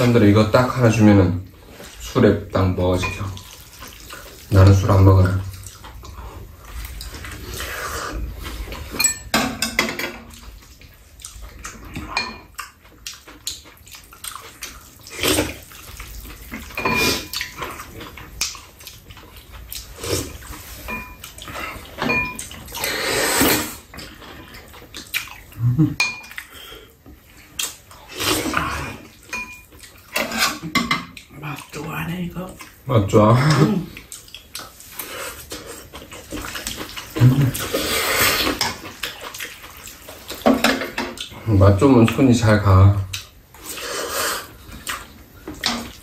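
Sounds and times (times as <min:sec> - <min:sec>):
slurping and chewing: 0:03.4 - 0:09.0, 0:10.2 - 0:31.8, 0:33.4 - 0:42.2, 0:43.1 - 0:46.0.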